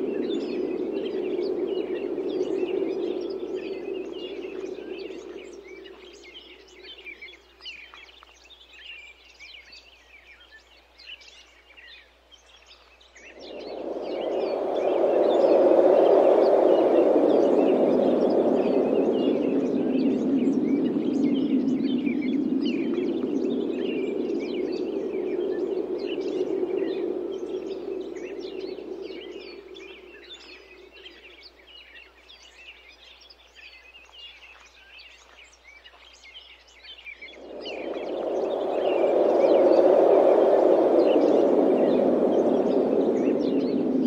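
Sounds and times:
wind blowing: 0.0 - 7.8, 13.2 - 31.7, 37.1 - 44.0
small birds chirping: 0.0 - 44.0.

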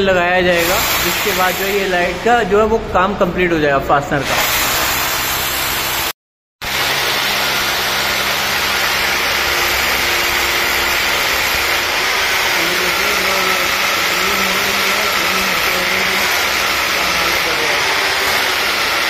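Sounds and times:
hammer drill boring: 0.6 - 2.2, 4.2 - 19.0.

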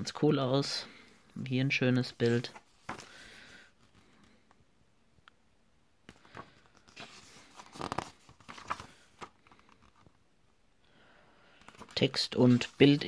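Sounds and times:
paper pages rustling: 2.0 - 4.4, 6.1 - 10.2, 11.6 - 13.0.

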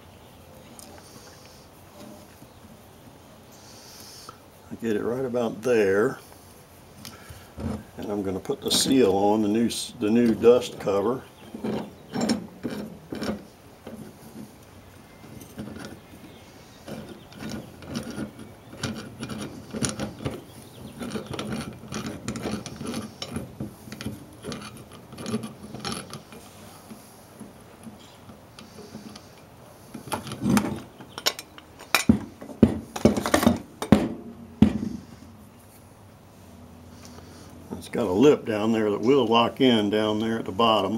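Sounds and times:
metal knocks and clanks: 10.2 - 14.1, 30.0 - 35.0
clamp screw clicking and rubbing: 16.8 - 32.1.

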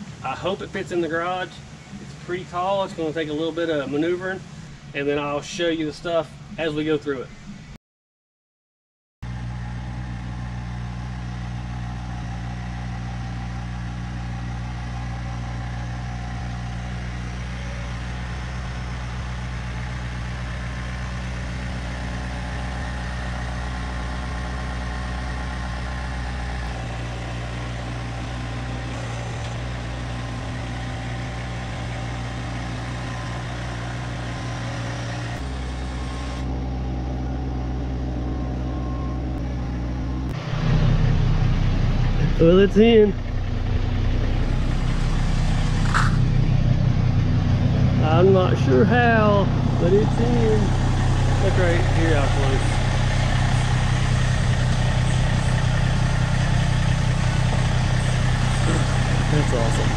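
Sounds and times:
vehicle engine running: 0.0 - 7.8, 9.2 - 59.9.

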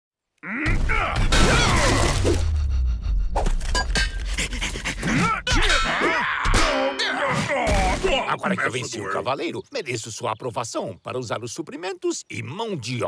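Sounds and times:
cartoon crash and impacts: 0.6 - 3.8
low rumble: 2.1 - 4.8.

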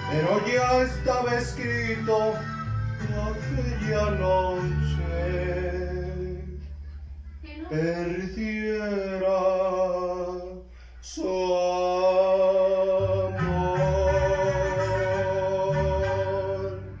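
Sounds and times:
man singing with vibrato: 0.0 - 6.7, 7.6 - 17.0
instrumental backing: 0.0 - 8.2, 13.0 - 17.0
bass line: 0.0 - 10.5, 11.2 - 17.0.

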